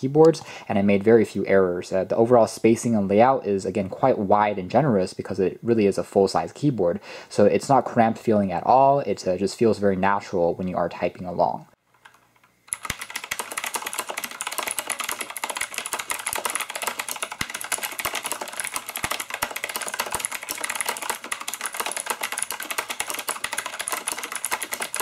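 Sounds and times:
fast typing on mechanical keyboard: 0:12.7 - 0:25.0.

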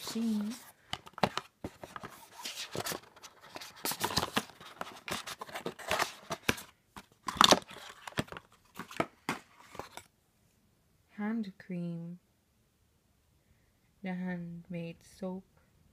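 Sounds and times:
card scraping and rustling: 0:00.0 - 0:10.1
crinkling: 0:00.0 - 0:10.1.

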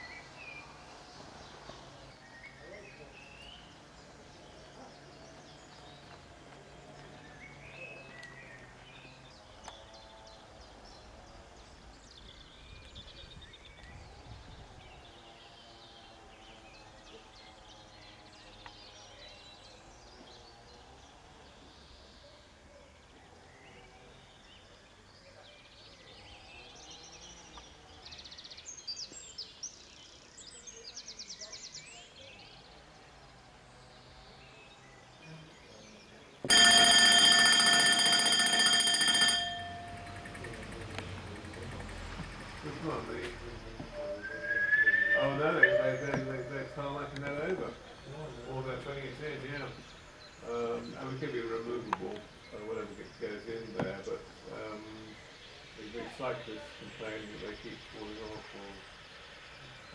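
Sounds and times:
birds chirping: 0:00.0 - 0:59.9
steam locomotive whistle: 0:44.0 - 0:46.5
bird trilling: 0:44.0 - 0:46.9.

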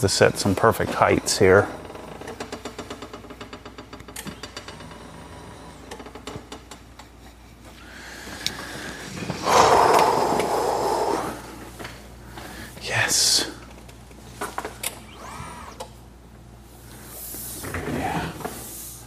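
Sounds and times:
mechanism whirring rush: 0:08.2 - 0:11.8, 0:14.3 - 0:19.0.

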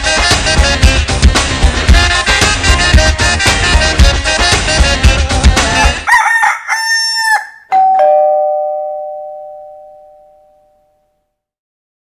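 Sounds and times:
rooster crowing: 0:05.8 - 0:07.7
two-tone doorbell chime: 0:07.7 - 0:11.1.

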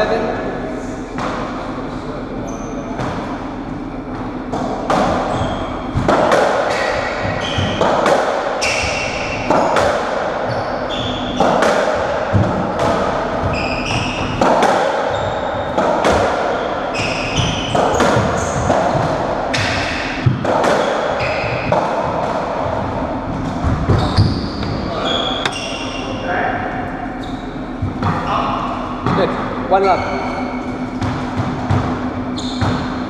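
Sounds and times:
ball hit by rackets off walls: 0:05.9 - 0:10.4, 0:15.8 - 0:16.6
trainers squeaking on wooden floor: 0:23.9 - 0:25.9.

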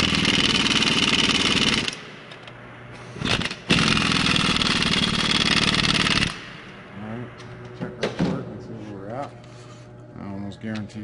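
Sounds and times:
impact wrench hammering: 0:00.0 - 0:02.2, 0:03.2 - 0:06.8.

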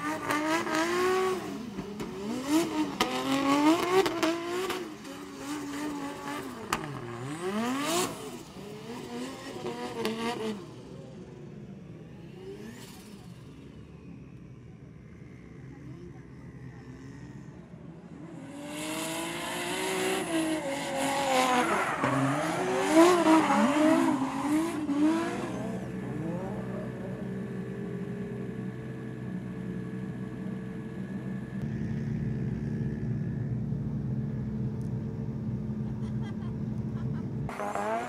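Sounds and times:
car engine revving: 0:18.4 - 0:28.7, 0:37.0 - 0:38.0
engine running steadily: 0:25.8 - 0:37.5.

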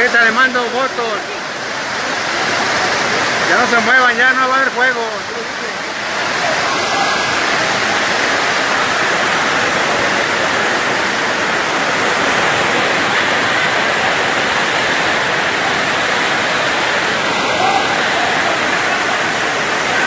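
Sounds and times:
rainwater cascading down concrete steps: 0:00.0 - 0:20.0.

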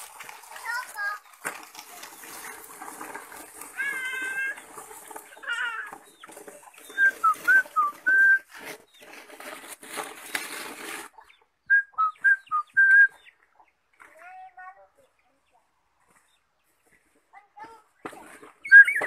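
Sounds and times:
bird whistling song: 0:06.8 - 0:08.5, 0:11.6 - 0:13.3, 0:18.6 - 0:19.0.

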